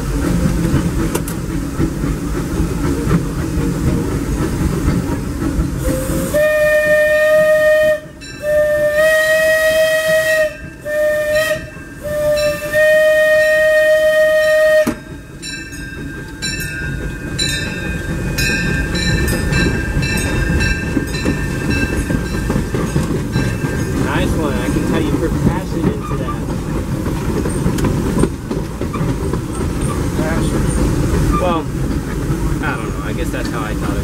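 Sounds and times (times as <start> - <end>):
train wheels clattering on rails: 0.0 - 34.0
steam locomotive whistle blasts: 5.8 - 15.2.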